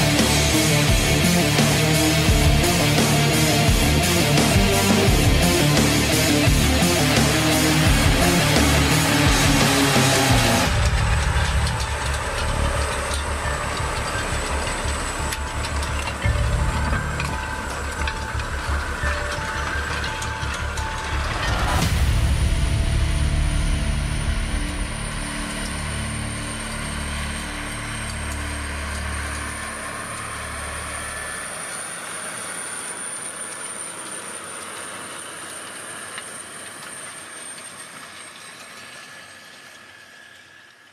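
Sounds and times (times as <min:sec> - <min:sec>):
tractor diesel engine under load: 0:00.0 - 0:36.8
steady high whine: 0:00.0 - 0:40.9.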